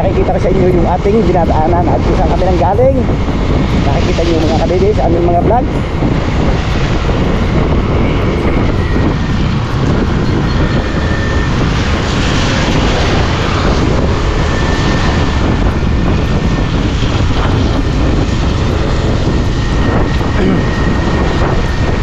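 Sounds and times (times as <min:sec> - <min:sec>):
wind rush: 0:00.0 - 0:22.0
motorcycle engine: 0:05.6 - 0:22.0.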